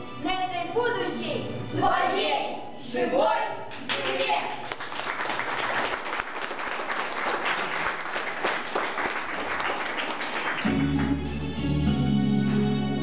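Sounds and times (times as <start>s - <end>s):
music: 0.0s - 5.4s, 9.7s - 13.0s
audience applauding: 3.9s - 11.6s.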